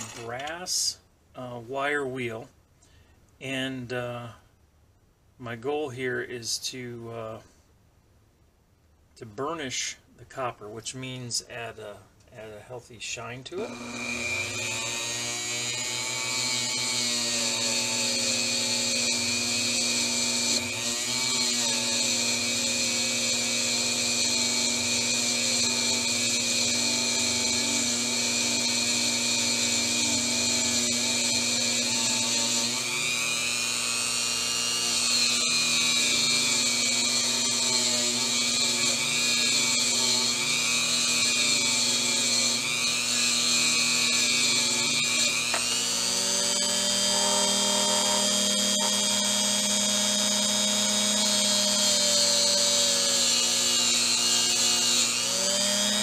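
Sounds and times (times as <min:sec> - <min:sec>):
rotary tool high whine: 0:00.0 - 0:00.4, 0:13.6 - 0:56.0.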